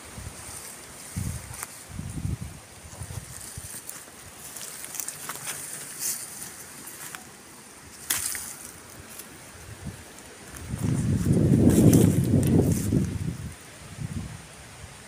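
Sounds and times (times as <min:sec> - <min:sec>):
dry leaves crackling underfoot: 0:00.0 - 0:14.0
twig cracking: 0:03.5 - 0:09.4, 0:10.1 - 0:13.2.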